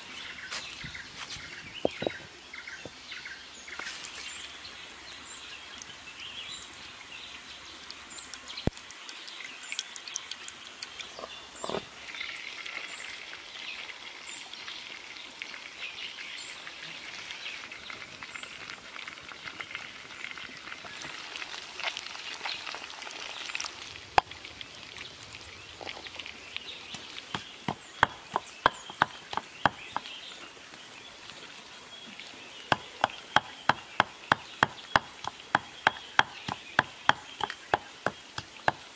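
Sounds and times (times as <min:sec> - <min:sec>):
wood fire crackling and hissing: 0:00.0 - 0:38.9
stone pestle pounding in mortar: 0:27.3 - 0:30.1, 0:32.7 - 0:38.8.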